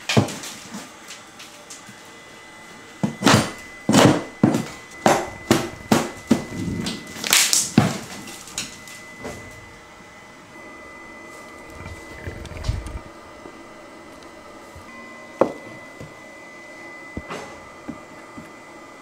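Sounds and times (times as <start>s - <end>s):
wood cracking: 5.1s - 8.8s.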